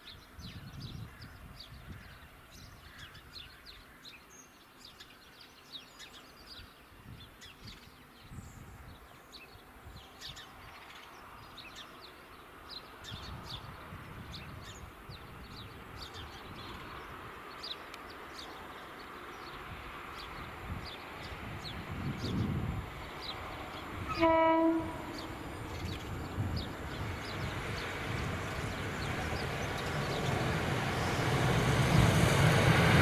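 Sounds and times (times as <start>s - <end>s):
small birds chirping: 0.0s - 24.3s, 24.9s - 32.8s
wind gusts on microphone: 0.2s - 3.4s, 6.5s - 9.1s, 13.0s - 17.8s, 19.4s - 33.0s
diesel train approaching: 12.4s - 33.0s.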